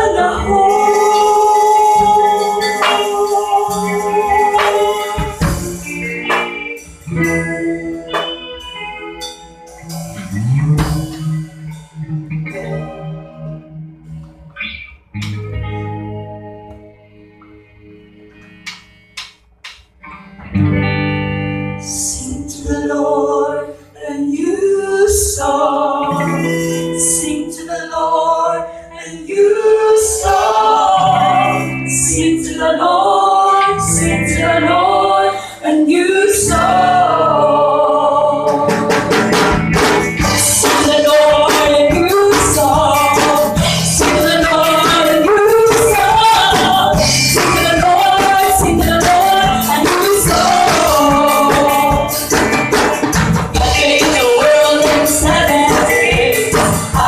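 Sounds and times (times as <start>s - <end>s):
group singing: 0.0s - 8.4s, 21.9s - 57.0s
acoustic guitar: 0.0s - 57.0s.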